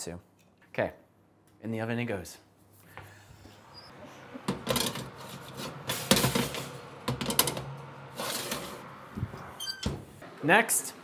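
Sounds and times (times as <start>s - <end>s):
metal tray scraping on oven rack: 4.6s - 9.8s.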